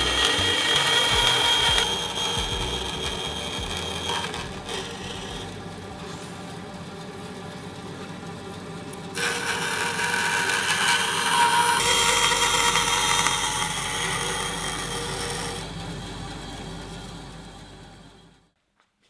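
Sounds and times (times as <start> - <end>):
saw blade rasping through sheet: 0.0 - 5.6
band saw motor humming: 0.0 - 18.5.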